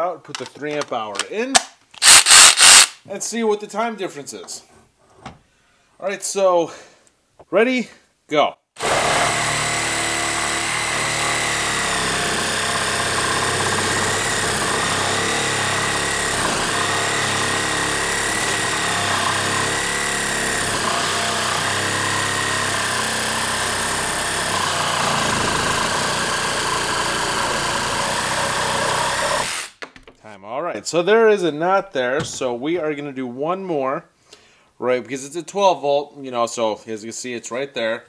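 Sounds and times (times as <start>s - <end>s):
reciprocating saw cutting wood: 8.8s - 29.8s.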